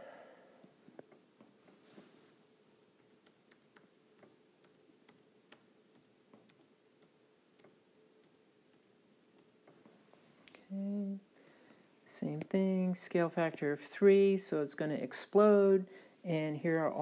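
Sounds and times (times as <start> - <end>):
low steady hum: 0.0 - 17.0
faint irregular ticks: 2.6 - 11.1.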